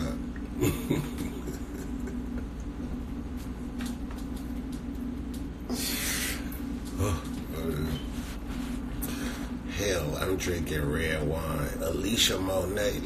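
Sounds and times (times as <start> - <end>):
steady low hum: 0.0 - 13.0
man laughing: 0.5 - 2.9.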